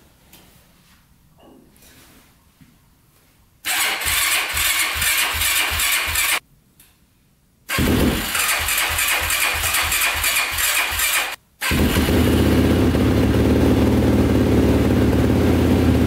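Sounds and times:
engine turning over on electric starter: 3.7 - 6.4, 7.7 - 13.9.

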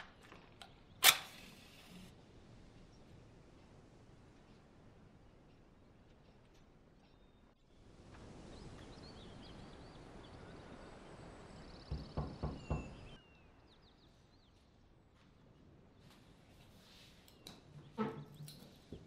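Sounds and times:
birds chirping: 2.6 - 19.0
knocking on a wooden door: 11.9 - 13.1.

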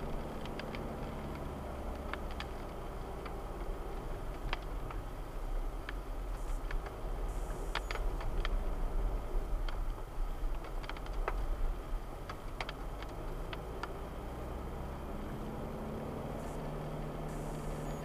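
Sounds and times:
car interior rumble: 0.0 - 18.0
light rattles and clicks: 9.6 - 11.6, 12.2 - 14.0.

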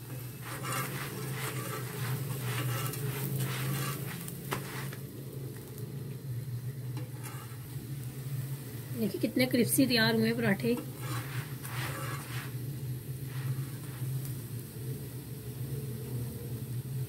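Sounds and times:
spatula scraping griddle: 0.0 - 5.1, 7.0 - 8.1, 9.5 - 14.4
flatbread sizzling on griddle: 0.0 - 17.0
steady low hum: 0.0 - 17.0.

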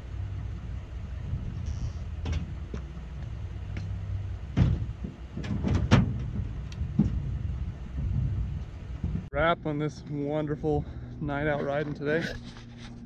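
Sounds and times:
low steady rumble: 0.0 - 13.0
gear knocking in truck bed: 1.3 - 9.4.

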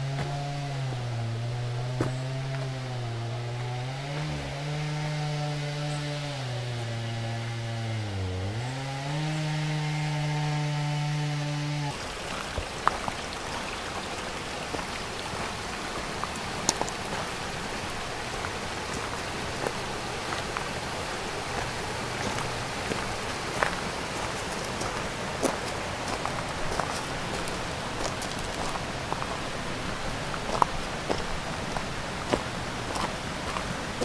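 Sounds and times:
chainsaw running at high speed: 0.0 - 12.0
water drips: 11.9 - 20.7
water trickling down rocky cascade: 11.9 - 34.0.

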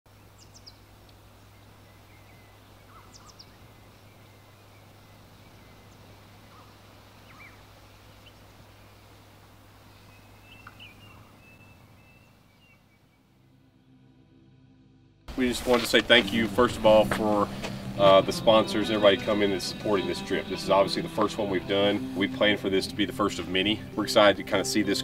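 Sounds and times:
bird chirps: 0.1 - 9.0, 9.8 - 13.4
steady hiss and low hum: 0.1 - 13.4, 15.3 - 25.0.

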